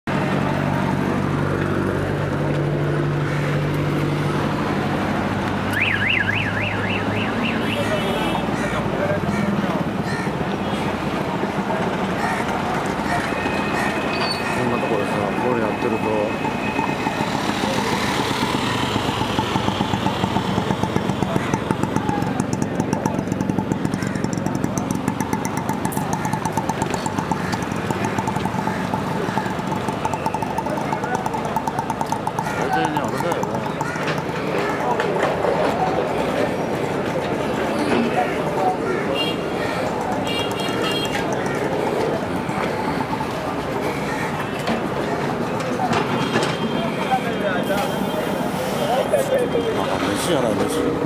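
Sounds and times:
street traffic: 0.0 - 51.0
warbling siren: 5.7 - 7.8
engine running nearby: 16.3 - 51.0.

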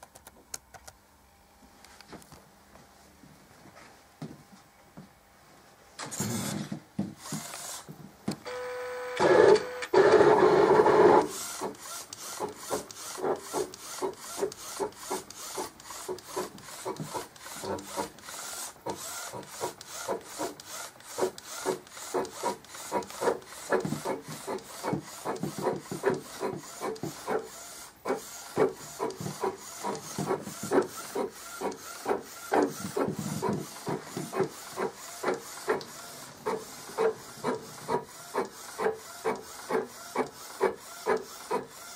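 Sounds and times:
printer carriage whirring: 6.0 - 41.9.

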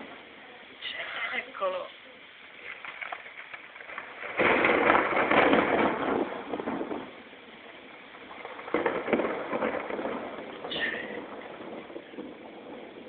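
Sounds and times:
thunder clap and rumble: 2.9 - 13.0.

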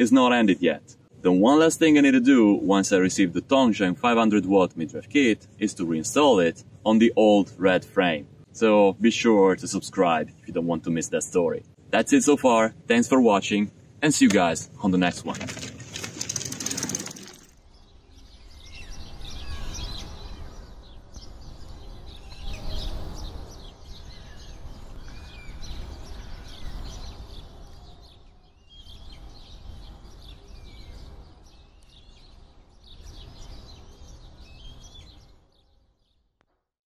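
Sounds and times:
small birds chirping: 14.2 - 36.2.

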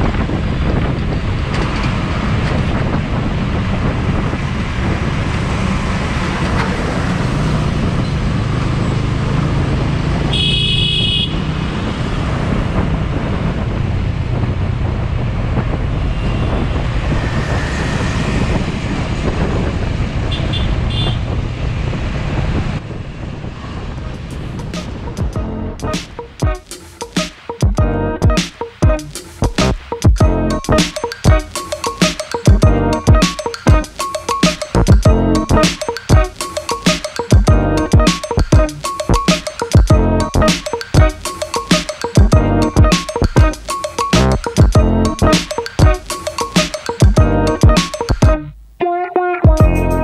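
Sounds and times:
passing vehicles rushing: 0.0 - 26.5
vehicle horn honking: 10.3 - 11.5, 16.1 - 16.8, 20.2 - 21.3.

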